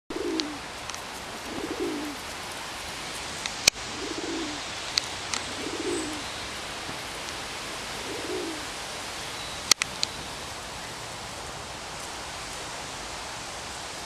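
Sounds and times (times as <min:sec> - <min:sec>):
bird cooing low: 0:00.1 - 0:00.7, 0:01.3 - 0:02.2, 0:03.8 - 0:04.7, 0:05.4 - 0:06.3, 0:07.9 - 0:08.7.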